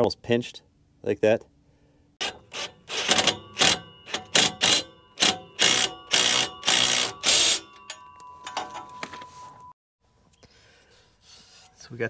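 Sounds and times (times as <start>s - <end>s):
ratchet wrench clicking: 2.2s - 8.0s.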